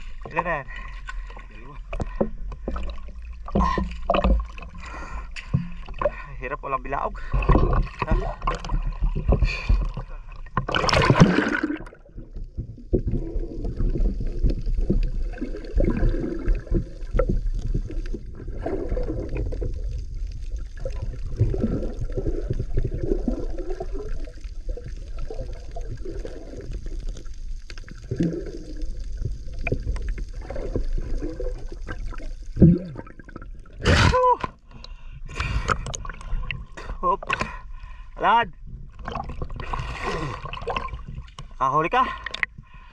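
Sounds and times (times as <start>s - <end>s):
underwater gurgling and bubbling: 0.0s - 41.6s
water splash: 7.3s - 34.5s, 39.0s - 41.5s.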